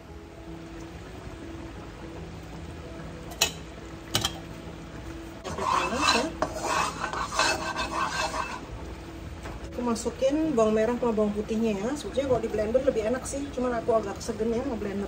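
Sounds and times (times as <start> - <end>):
spatula scraping a wok: 5.4 - 8.7.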